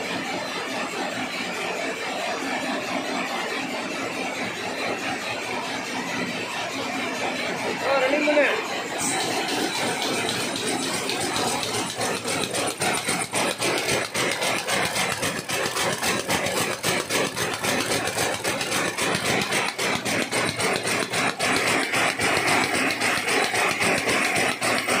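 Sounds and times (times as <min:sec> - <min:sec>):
weaving loom clattering: 0:06.8 - 0:25.0.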